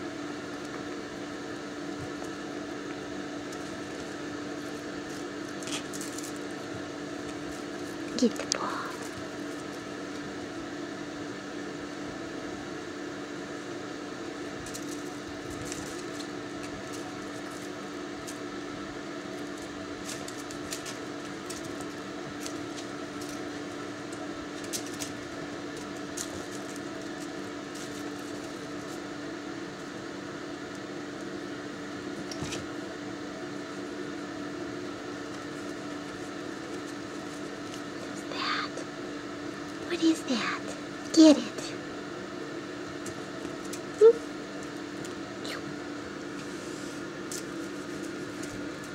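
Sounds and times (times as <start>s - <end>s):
low mechanical hum: 0.0s - 48.9s.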